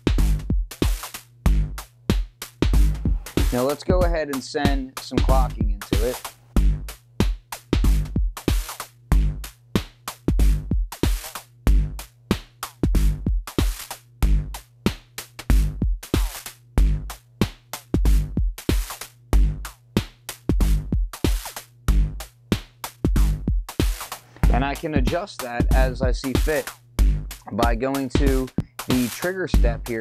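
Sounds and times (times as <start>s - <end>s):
electronic drum pattern: 2.6s - 9.5s, 23.1s - 30.0s.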